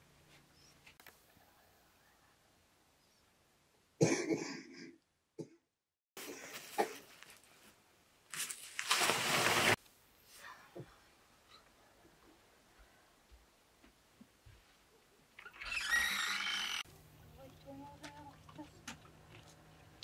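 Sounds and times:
person coughing: 4.0s - 5.6s.

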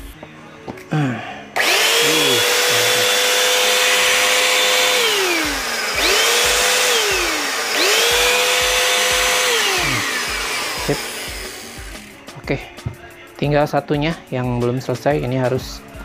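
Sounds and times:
vacuum cleaner motor whining: 1.6s - 12.2s.

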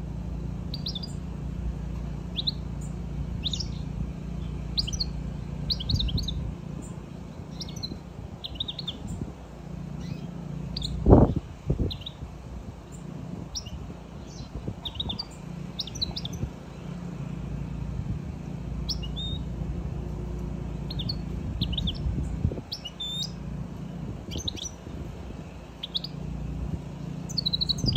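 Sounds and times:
steady low hum: 0.0s - 27.9s
bird chirping: 0.7s - 1.2s, 2.3s - 9.2s, 10.0s - 12.2s, 12.9s - 17.0s, 18.8s - 19.5s, 20.8s - 23.4s, 24.3s - 24.9s, 25.7s - 26.2s, 27.2s - 27.9s.

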